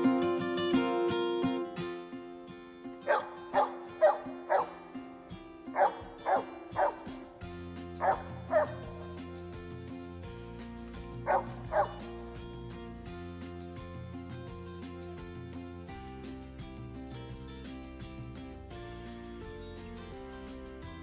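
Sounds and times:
guitar music: 0.0 - 21.0
dogs barking: 3.0 - 4.9, 5.7 - 7.3, 8.0 - 9.0, 11.2 - 12.1.

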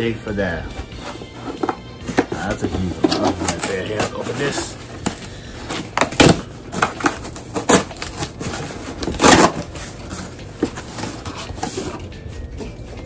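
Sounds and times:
packaging crackling and clicking: 1.5 - 12.0
packaging tearing rustle: 5.8 - 10.3.

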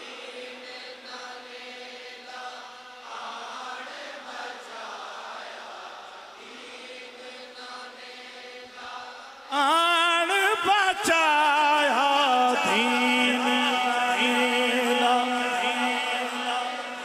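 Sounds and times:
group voices singing: 0.0 - 9.6, 12.5 - 17.0
man chanting into a microphone: 9.4 - 17.0.

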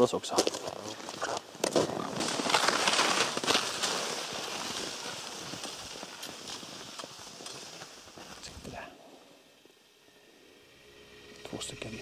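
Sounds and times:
crackling rustle of gear: 0.0 - 8.9.

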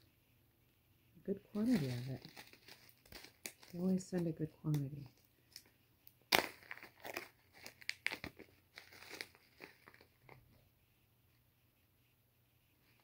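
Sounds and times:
dried flowers crinkling: 1.2 - 10.5.

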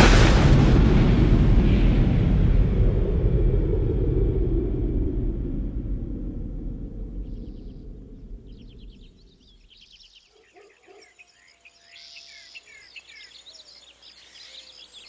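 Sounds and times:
deep rumble: 0.0 - 9.7
birds chirping: 7.1 - 15.0.

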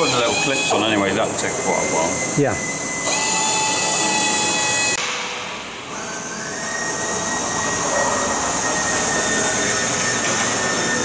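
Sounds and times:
power tool whining: 0.0 - 5.0.

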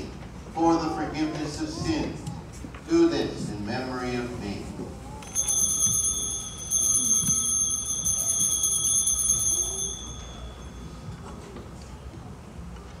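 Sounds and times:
altar bells ringing: 5.2 - 11.7.

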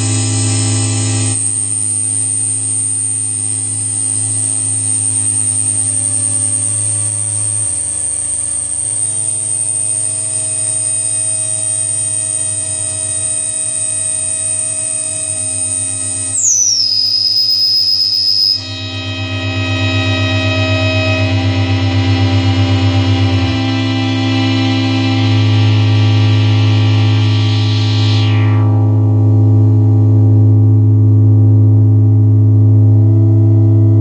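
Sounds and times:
synthesizer drone: 0.0 - 34.0
high synth tone gliding down: 0.7 - 32.1.

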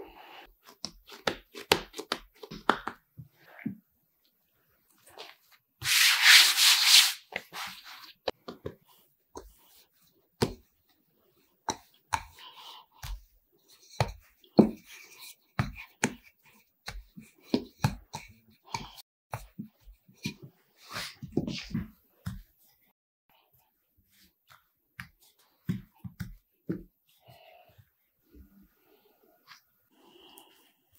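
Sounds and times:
rolling pin rolling dough: 11.4 - 22.7.

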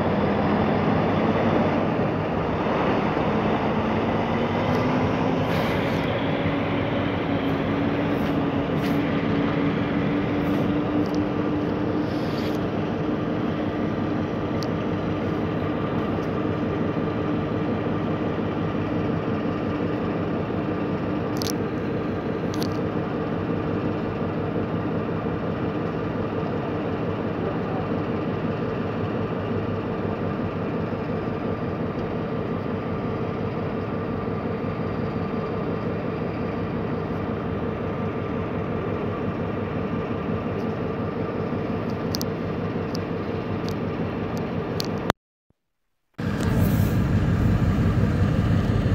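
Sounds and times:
diesel engine idling: 0.0 - 45.1, 46.2 - 48.9.

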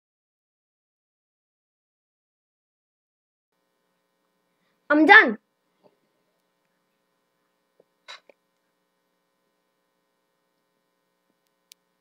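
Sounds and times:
faint electrical hum: 3.6 - 12.0.

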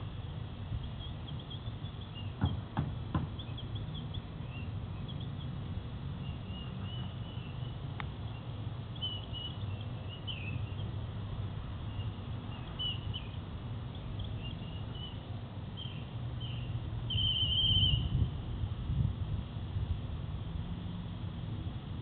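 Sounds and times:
whistle trill: 17.1 - 18.1.

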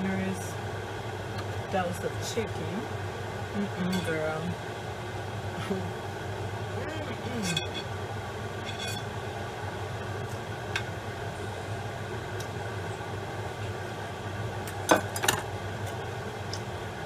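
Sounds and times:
kitchen fan humming: 0.0 - 17.0
plate and knife clinking: 7.4 - 7.9, 8.6 - 9.1.

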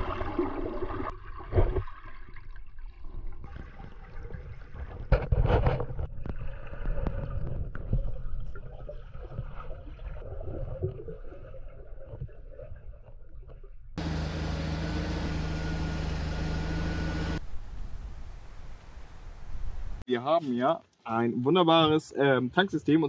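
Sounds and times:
water gurgling burst: 0.0 - 5.2.

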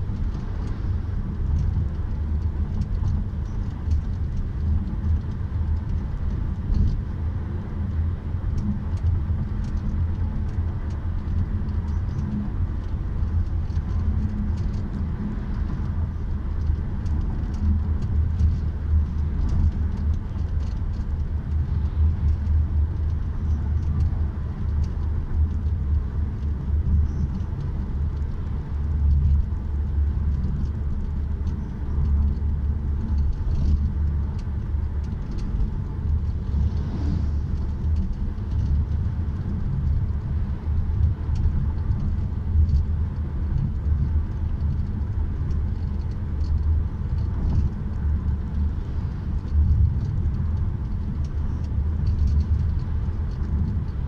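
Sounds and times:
engine hum: 0.0 - 54.0
road and tyre noise: 0.0 - 54.0.

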